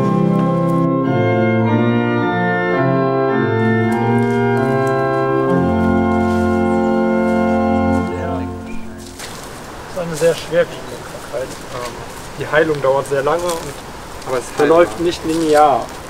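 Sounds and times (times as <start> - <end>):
organ playing slow chords: 0.0 - 9.2.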